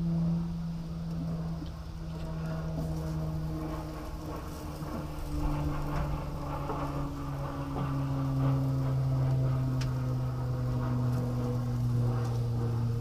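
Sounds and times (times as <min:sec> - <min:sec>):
steady low hum: 0:00.0 - 0:13.0
chicken sizzling on a grill: 0:02.4 - 0:07.6.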